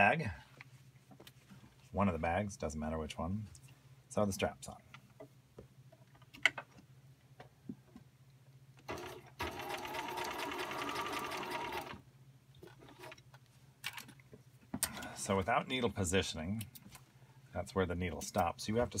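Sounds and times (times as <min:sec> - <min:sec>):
sewing machine stitching: 0:08.9 - 0:12.0.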